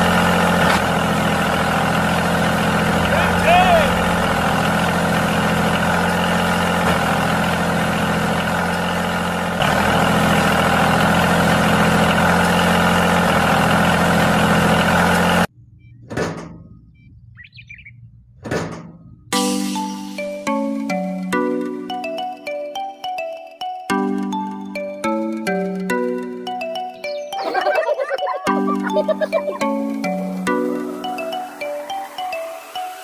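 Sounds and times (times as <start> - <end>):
small motor humming: 0.0 - 15.5
faint chirp: 15.6 - 18.3, 26.9 - 28.8.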